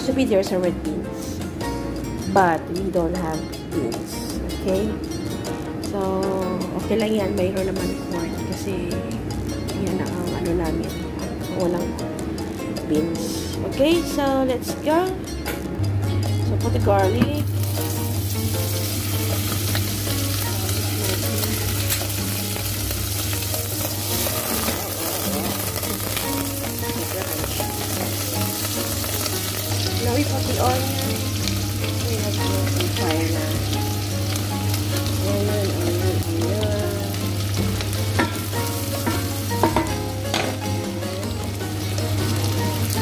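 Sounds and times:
butter sizzling: 17.0s - 43.0s.

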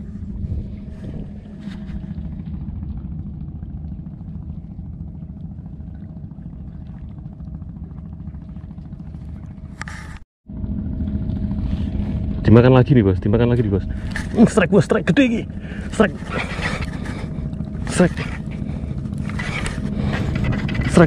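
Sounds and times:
wind buffeting microphone: 0.0s - 10.2s.

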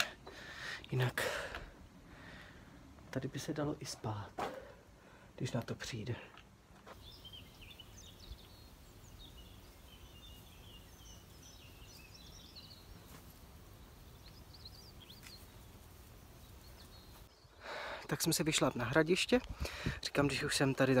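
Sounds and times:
small birds chirping: 5.4s - 21.0s.

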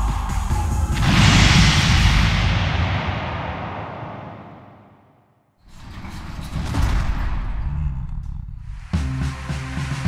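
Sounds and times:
low rumble: 1.0s - 5.2s
rushing sound: 1.0s - 5.3s.

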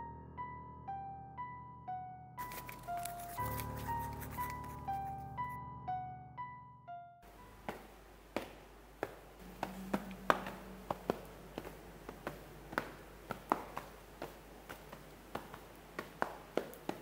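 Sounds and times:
faint room hum: 7.2s - 17.0s
footsteps on tiled stairs: 7.4s - 17.0s.

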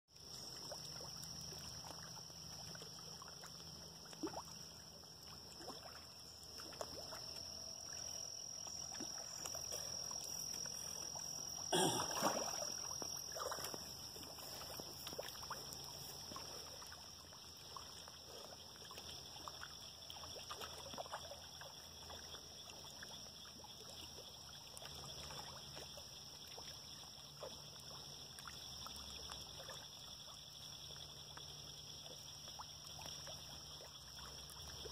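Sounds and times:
fish plops and splashes: 4.0s - 16.9s.

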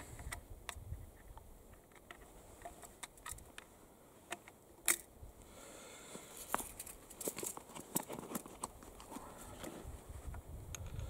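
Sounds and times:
gun lock clicks and handling: 1.7s - 3.7s, 4.3s - 5.1s.

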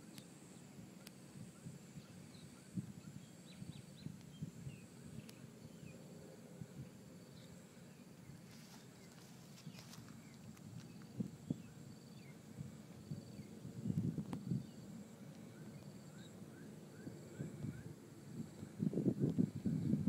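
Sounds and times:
faint steady high whine: 0.0s - 20.0s.

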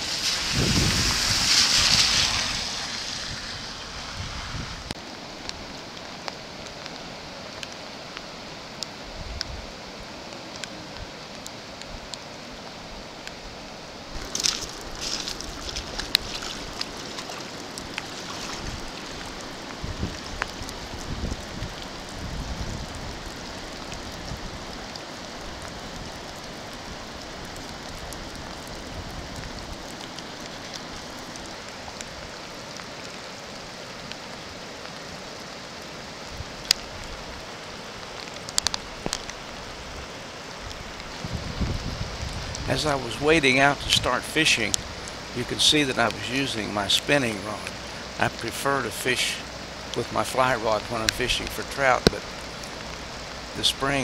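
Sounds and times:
water hissing: 0.0s - 5.0s, 14.1s - 20.6s.

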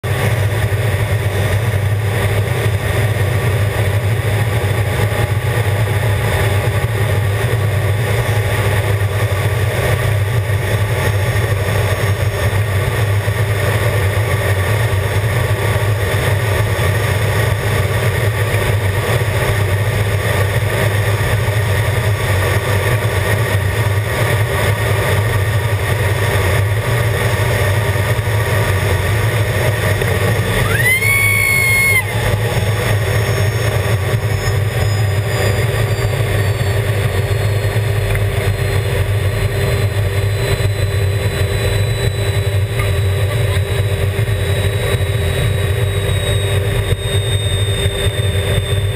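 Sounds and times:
jet engine drone in cockpit: 0.0s - 48.9s.

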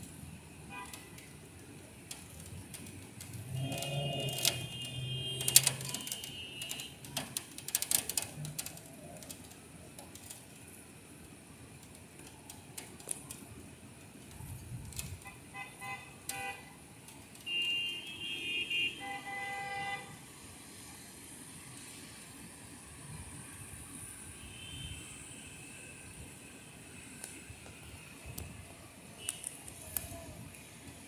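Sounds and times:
car horns honking: 3.4s - 7.0s, 15.2s - 16.8s, 17.4s - 20.1s.

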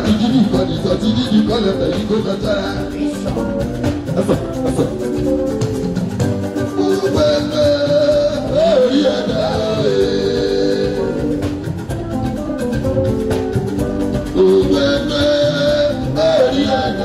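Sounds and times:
man singing into a microphone: 0.0s - 5.2s, 6.7s - 11.5s, 14.3s - 17.0s
live band music: 0.0s - 17.0s.

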